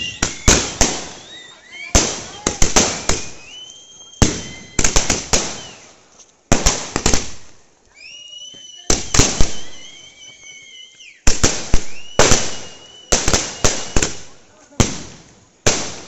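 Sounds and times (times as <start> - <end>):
high whistling tone: 0.0 - 5.9, 7.9 - 14.2
fireworks bangs and crackles: 0.0 - 16.0.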